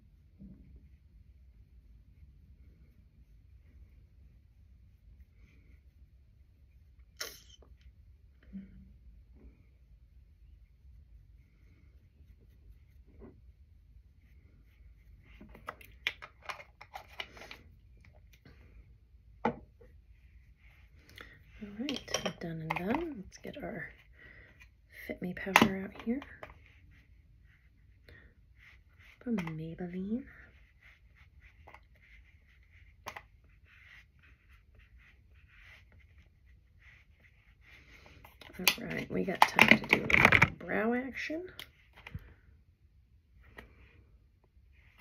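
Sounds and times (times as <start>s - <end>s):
makeup brush tapping container: 21.8s - 23.1s.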